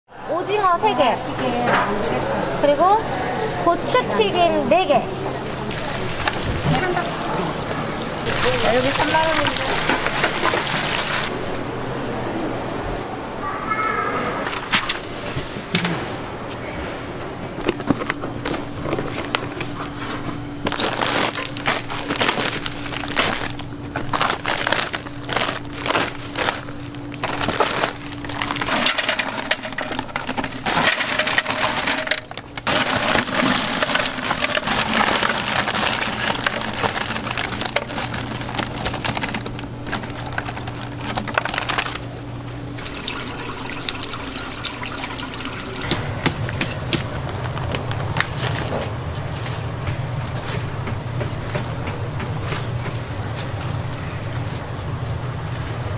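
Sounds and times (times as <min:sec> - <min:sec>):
paper crinkling: 0:08.2 - 0:11.3, 0:17.6 - 0:42.1, 0:45.9 - 0:55.9
steady low hum: 0:14.3 - 0:55.9.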